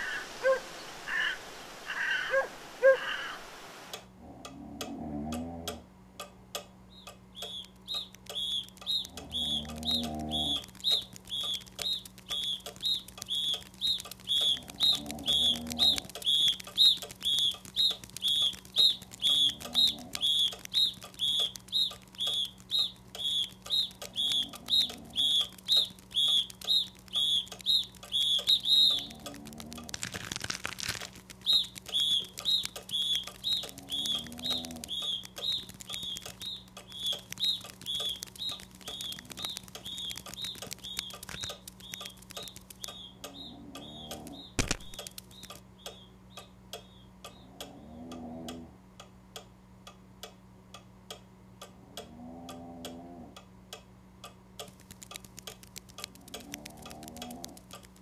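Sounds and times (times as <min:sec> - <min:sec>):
high thin chirp: 0:31.4 - 0:46.0.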